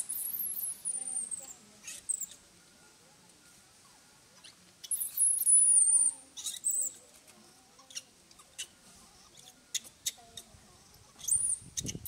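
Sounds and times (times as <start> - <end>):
baby monkey squealing: 4.4 - 7.0, 11.2 - 12.0.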